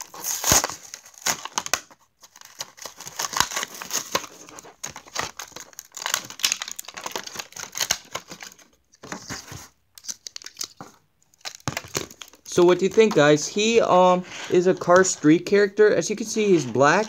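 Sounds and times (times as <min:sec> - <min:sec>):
cardboard ripping: 0:00.0 - 0:09.7
plastic blister crinkling: 0:00.0 - 0:15.4.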